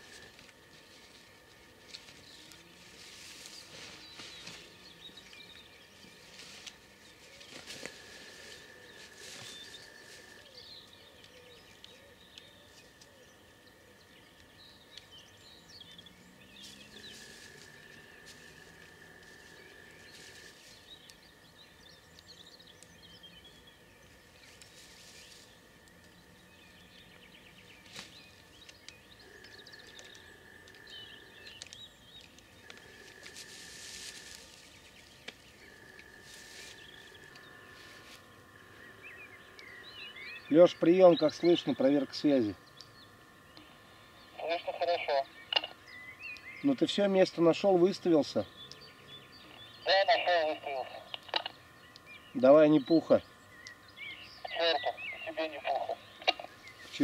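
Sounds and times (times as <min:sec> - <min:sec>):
rustling: 0:00.0 - 0:04.8, 0:06.0 - 0:10.5, 0:16.6 - 0:21.1, 0:24.4 - 0:26.1, 0:31.6 - 0:38.3
songbird chirps: 0:00.0 - 0:57.0.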